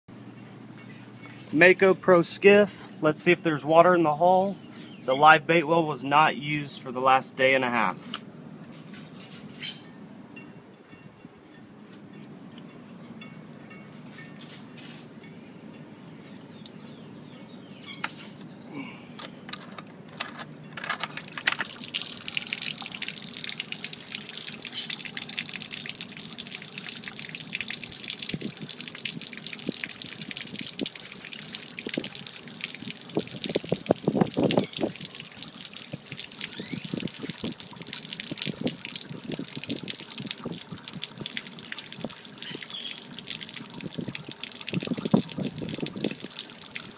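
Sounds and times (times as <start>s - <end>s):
water splashing onto concrete: 21.1s - 46.9s.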